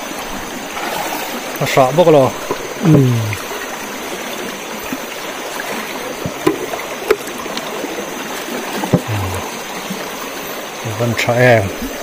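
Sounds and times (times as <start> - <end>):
river water flowing: 0.0 - 12.0.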